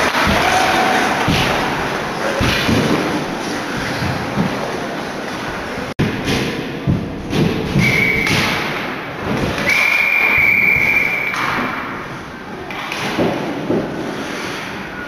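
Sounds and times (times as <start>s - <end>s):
ice rink noise with low thuds: 0.0s - 15.0s
referee's whistle: 7.8s - 8.4s, 9.6s - 11.5s.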